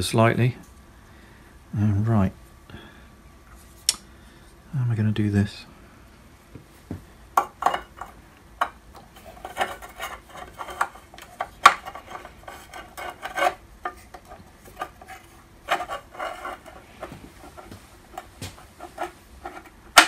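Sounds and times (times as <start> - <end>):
metal parts scraping and clicking: 9.1 - 20.0.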